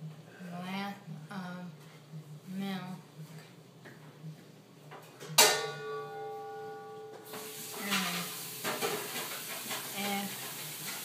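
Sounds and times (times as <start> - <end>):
metallic clank ringing: 5.4 - 7.3
steady hiss: 7.3 - 11.0.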